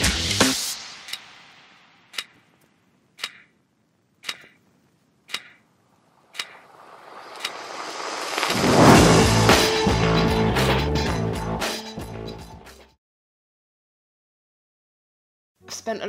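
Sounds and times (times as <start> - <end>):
clock ticking: 2.1 - 2.4, 3.2 - 3.6, 4.2 - 5.7, 6.3 - 6.6
background music: 8.7 - 13.0.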